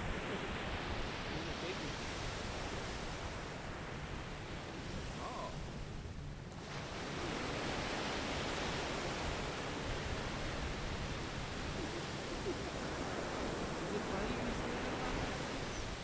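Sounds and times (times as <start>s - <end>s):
waves breaking on beach: 0.0s - 16.0s.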